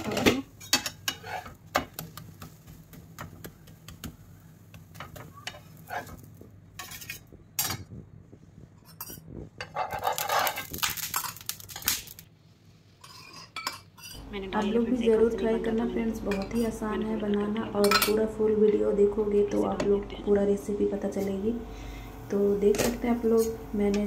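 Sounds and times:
metal spatula scraping griddle: 0.0 - 1.6, 5.3 - 7.3, 13.0 - 14.2.

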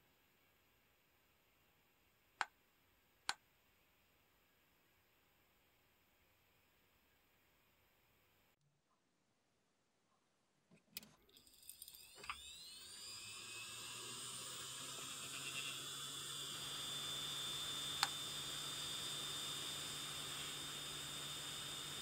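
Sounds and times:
motor starting clicks: 11.4 - 19.5
hard drive motor whine: 12.0 - 22.0.

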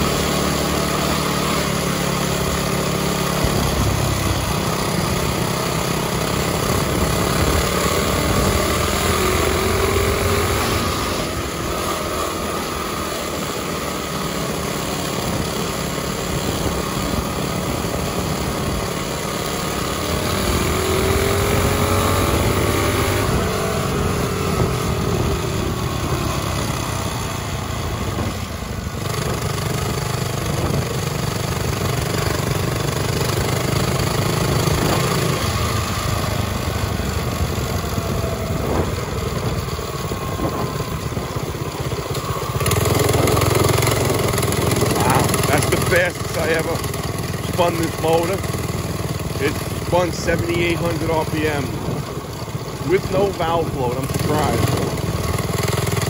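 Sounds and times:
small motorbike engine revving: 0.0 - 56.0
wind rushing across microphone: 20.2 - 31.7, 34.0 - 48.5, 49.4 - 53.1.

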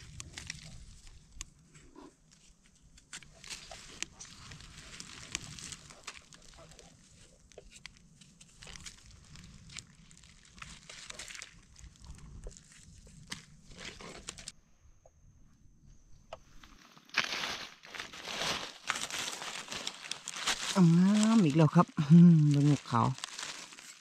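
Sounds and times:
small handling noises: 0.0 - 14.6, 16.3 - 24.0
dry leaves rustling: 3.1 - 14.5, 16.6 - 24.0.

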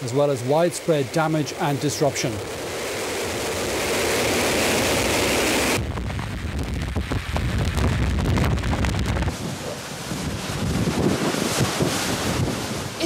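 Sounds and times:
rough surf hissing: 0.0 - 5.8, 9.2 - 13.0
waves breaking against pier: 0.1 - 5.8, 9.1 - 13.0
wind buffeting microphone: 0.6 - 13.0.

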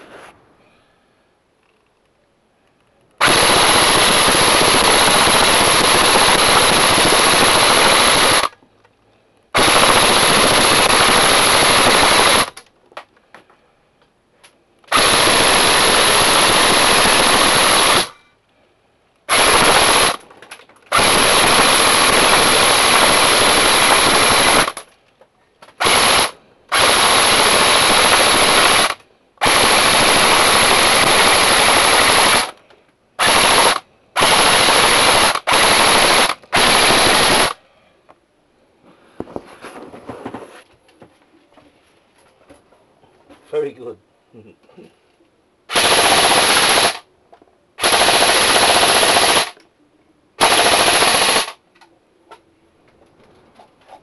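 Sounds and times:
airsoft rifle firing bursts: 3.2 - 8.5, 9.6 - 12.6, 14.9 - 18.2, 19.3 - 20.2, 20.9 - 24.9, 25.8 - 32.6, 33.2 - 37.6, 45.7 - 47.1, 47.8 - 49.6, 50.4 - 51.6.

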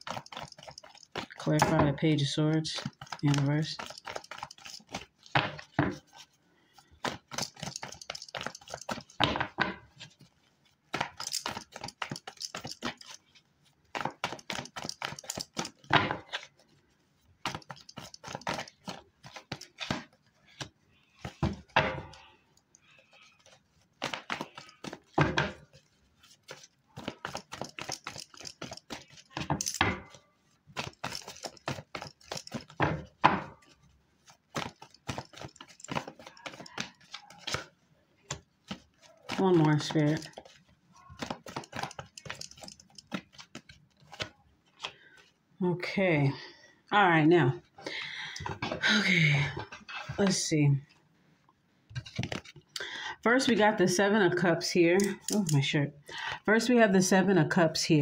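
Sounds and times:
cards riffling and flicking: 0.0 - 1.9, 2.5 - 45.4, 52.0 - 52.8.

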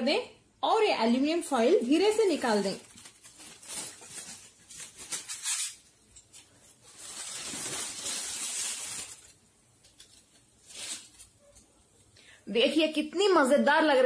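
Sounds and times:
aluminium foil crinkling: 1.4 - 12.0.

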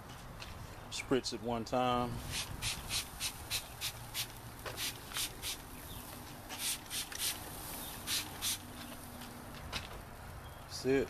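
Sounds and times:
spray bottle squirts: 2.3 - 5.6, 6.5 - 8.7.

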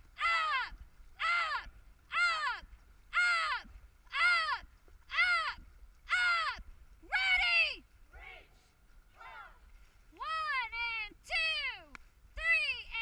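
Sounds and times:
person shouting short calls: 0.2 - 8.6, 9.2 - 9.6.

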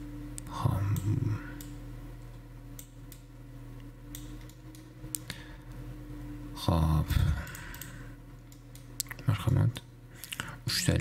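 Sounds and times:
low electrical hum: 0.0 - 11.0
computer mouse clicks: 2.8 - 3.3, 4.1 - 5.3, 7.4 - 10.4.

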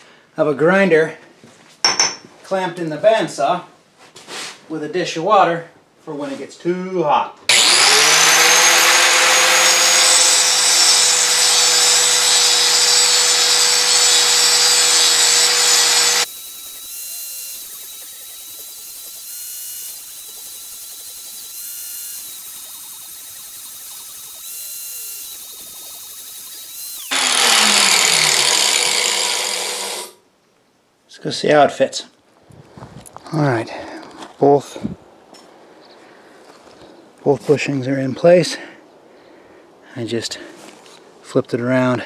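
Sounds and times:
angle grinder grinding steel: 7.5 - 30.2
thin high whine: 14.0 - 28.8.

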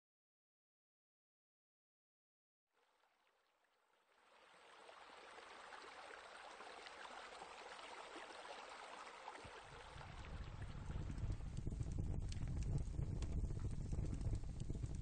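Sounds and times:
trickle of running water: 2.8 - 15.0
low rumble: 9.9 - 15.0.

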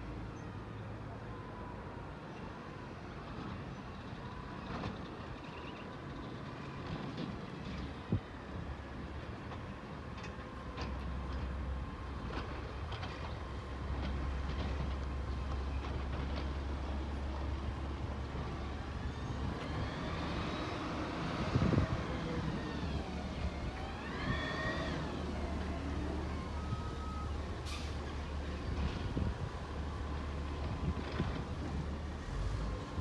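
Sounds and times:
street traffic: 0.0 - 33.0
distant garbage truck engine: 2.6 - 33.0
vehicle passing by: 16.8 - 26.8.

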